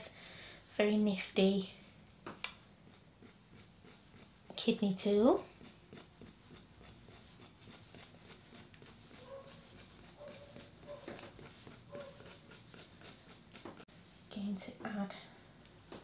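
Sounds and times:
tool scratching clay: 2.6s - 13.9s.

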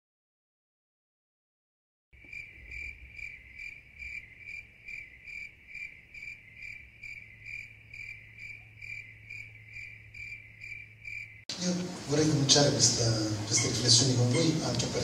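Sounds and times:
cricket chirping: 2.2s - 11.5s
low steady hum: 2.2s - 15.0s.

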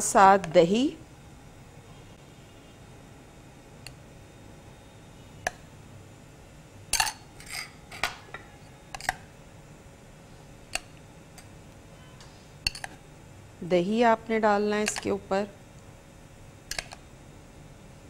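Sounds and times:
cutlery clinking on a plate: 12.7s - 13.0s.

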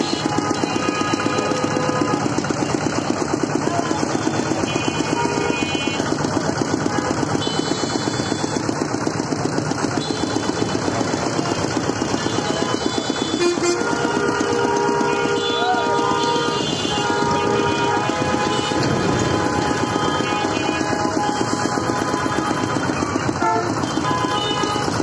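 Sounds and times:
small engine running: 0.0s - 25.0s
vehicle horns honking: 0.0s - 25.0s.

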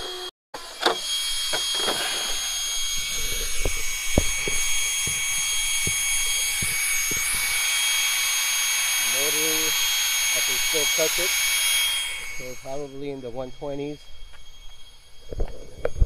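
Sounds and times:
cooling fans whirring: 0.0s - 15.4s
footsteps on asphalt: 3.6s - 7.4s.

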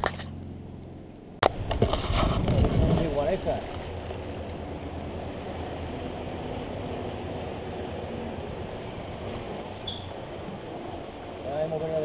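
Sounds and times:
wind rushing on microphone: 1.4s - 11.4s
brief high squeak: 9.8s - 10.2s.

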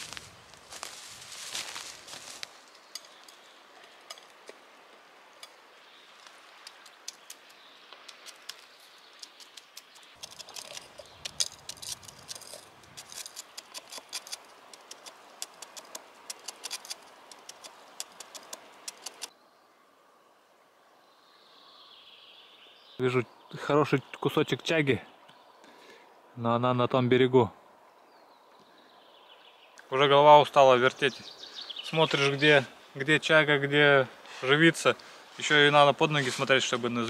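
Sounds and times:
knife scraping resin off bark: 6.6s - 19.3s.

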